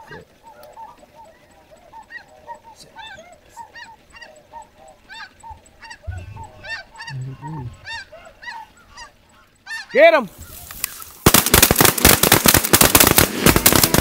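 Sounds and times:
short low-pitched hum: 0:00.0 - 0:08.9
geese honking: 0:00.0 - 0:11.2.

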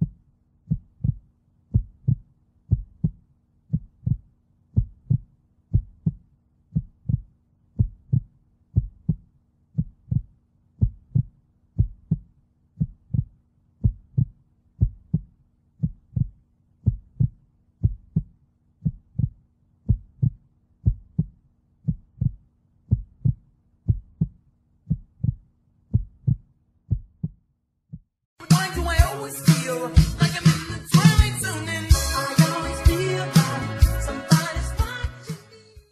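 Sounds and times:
heartbeat thumps: 0:00.0 - 0:28.1.

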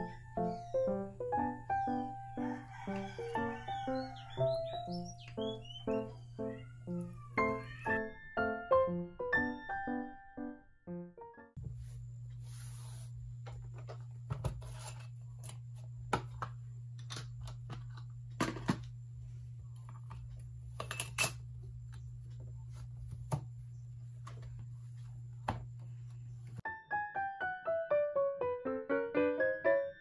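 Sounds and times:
steady low hum: 0:11.6 - 0:26.6.

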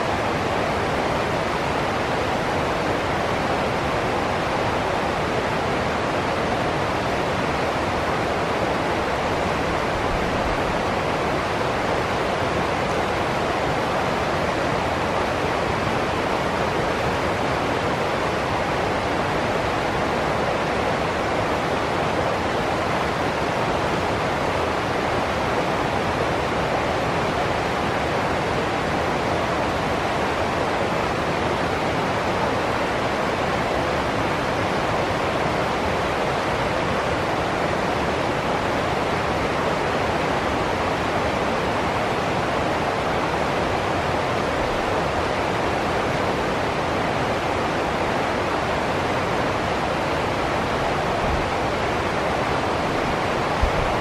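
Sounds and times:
water rushing over rocks: 0:00.0 - 0:54.0.

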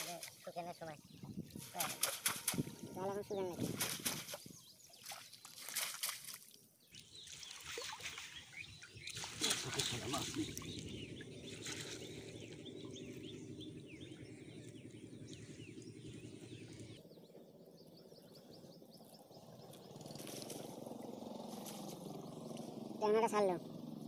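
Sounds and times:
river water sloshing: 0:00.0 - 0:17.0, 0:19.0 - 0:23.9
low steady hum: 0:06.8 - 0:24.0.

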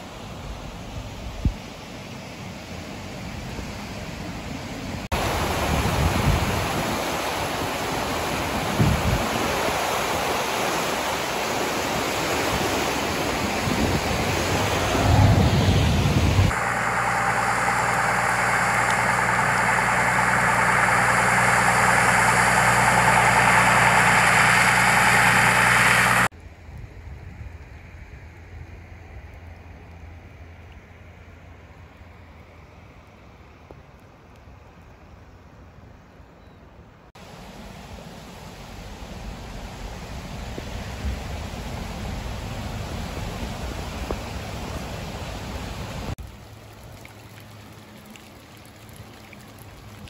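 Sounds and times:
rain: 0:00.0 - 0:35.9, 0:37.2 - 0:50.0
floodwater rushing: 0:05.1 - 0:26.3, 0:37.5 - 0:50.0
vehicle engine idling: 0:16.5 - 0:26.3.

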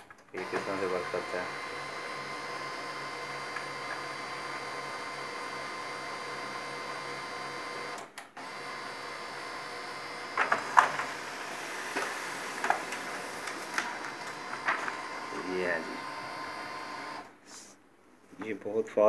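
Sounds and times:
printer paper mechanism clacks: 0:00.0 - 0:01.5, 0:03.4 - 0:04.4, 0:10.3 - 0:17.2
laser printer whine: 0:00.4 - 0:17.4.

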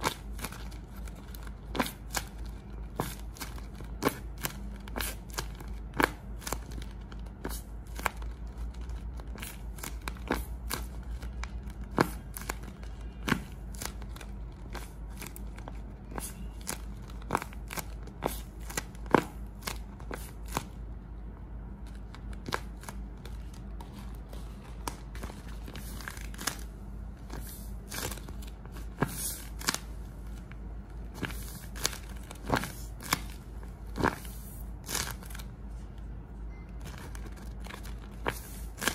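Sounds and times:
sharp paper crackles: 0:00.0 - 0:20.8, 0:21.8 - 0:35.5, 0:36.8 - 0:38.9
paper and tape crinkling: 0:21.8 - 0:35.8, 0:36.8 - 0:38.9.

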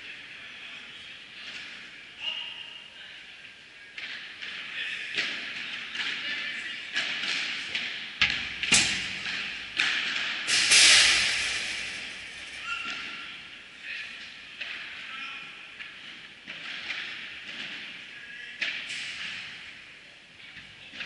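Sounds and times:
ball striking rackets echoing: 0:04.0 - 0:15.1, 0:15.8 - 0:19.8.

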